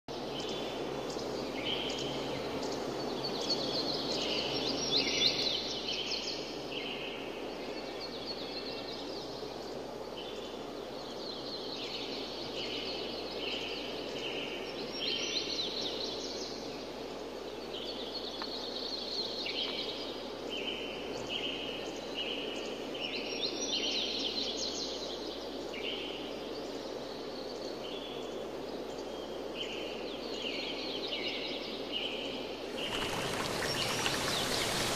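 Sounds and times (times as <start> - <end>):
small birds chirping: 26.6 - 34.9
flowing water rushing: 32.7 - 34.9.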